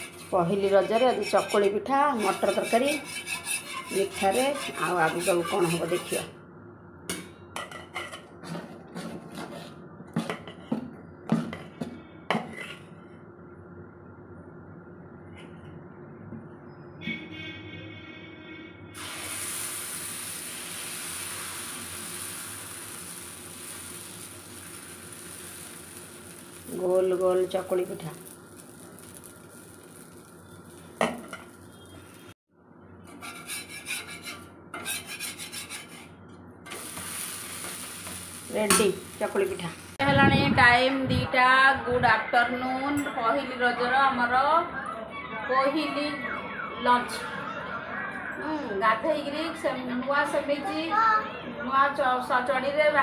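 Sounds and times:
batter sizzling: 0:00.0 - 0:06.3, 0:19.0 - 0:32.4, 0:36.7 - 0:40.0
ladle scraping on iron griddle: 0:00.0 - 0:06.3, 0:12.3 - 0:12.9, 0:19.0 - 0:32.3, 0:33.1 - 0:39.8.

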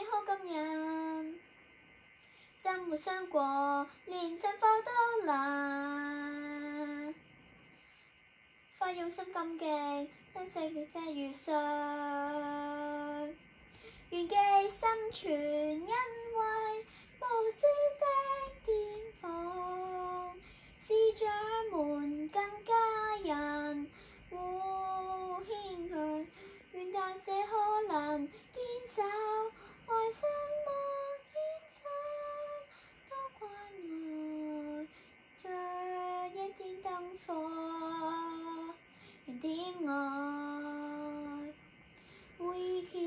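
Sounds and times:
girl singing: 0:00.0 - 0:01.4, 0:02.6 - 0:07.2, 0:08.7 - 0:41.6, 0:42.4 - 0:43.0.

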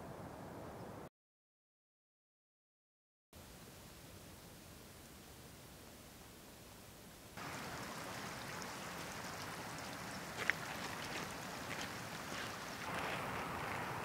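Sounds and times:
footsteps on wet gravel: 0:07.4 - 0:14.0
stream trickling over stones: 0:07.4 - 0:14.0.

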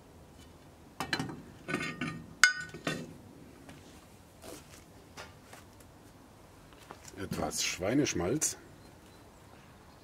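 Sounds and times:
cast iron pot parts clanking: 0:01.0 - 0:03.2.

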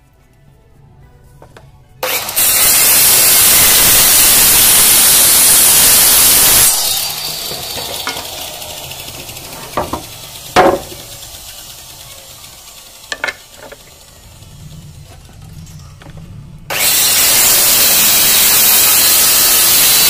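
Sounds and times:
circular saw cutting wood: 0:02.0 - 0:15.5, 0:16.7 - 0:20.0
sharp knocks: 0:09.7 - 0:11.1.

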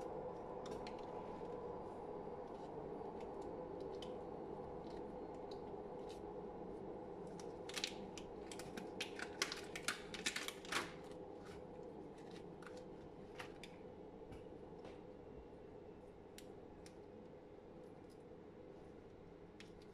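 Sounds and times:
steady low hum: 0:00.0 - 0:19.9.

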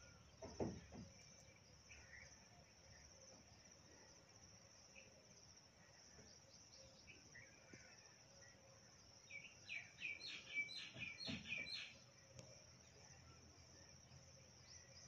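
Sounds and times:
insects trilling: 0:00.0 - 0:15.0
bird chirping calls: 0:09.2 - 0:12.4.

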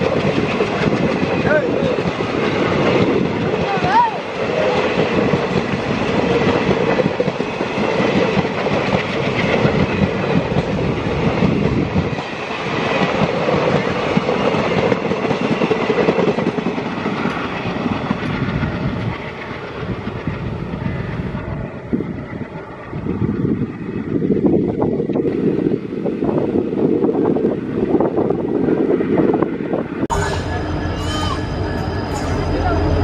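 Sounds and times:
train wheels clattering over rails: 0:00.0 - 0:21.3.

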